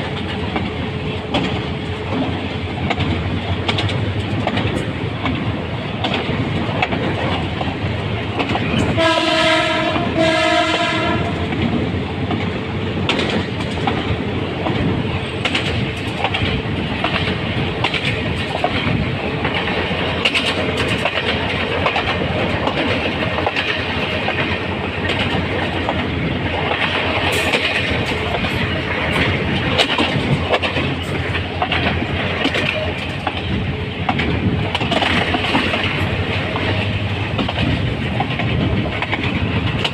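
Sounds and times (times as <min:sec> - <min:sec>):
diesel locomotive rumble: 0:00.0 - 0:39.9
locomotive horn blasts: 0:08.9 - 0:11.5
wheel clicks over rail joints: 0:11.5 - 0:39.9.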